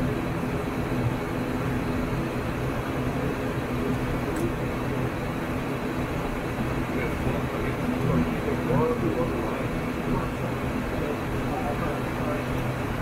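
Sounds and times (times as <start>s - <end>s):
turboprop engines humming: 0.0s - 13.0s.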